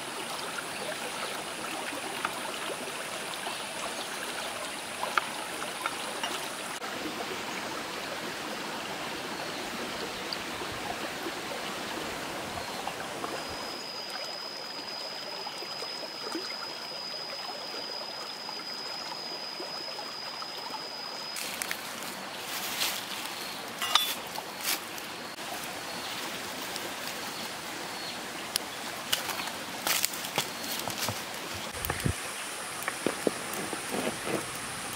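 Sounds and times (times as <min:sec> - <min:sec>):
stream running over rocks: 0:00.0 - 0:34.9
thin high tone: 0:21.2 - 0:25.4.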